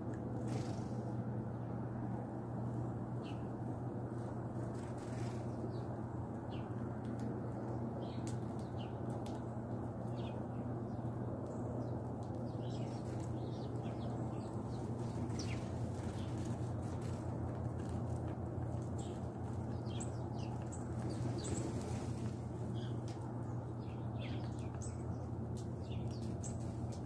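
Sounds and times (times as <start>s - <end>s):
steady low hum: 0.0s - 27.0s
sparrows chirping: 3.2s - 3.5s, 5.0s - 6.8s, 7.5s - 9.4s, 10.0s - 27.0s.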